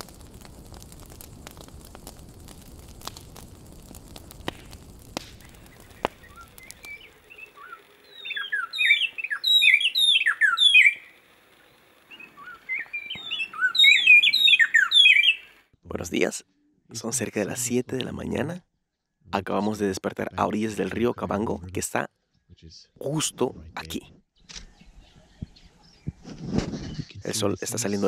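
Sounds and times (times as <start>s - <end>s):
campfire crackling and popping: 0.0s - 15.7s, 19.5s - 21.6s
birds singing whistled notes: 5.3s - 15.6s, 24.4s - 28.0s.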